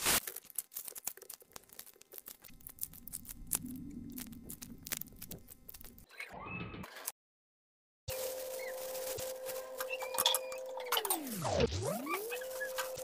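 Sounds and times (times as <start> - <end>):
hands kneading crumbly dough: 0.0 - 6.1.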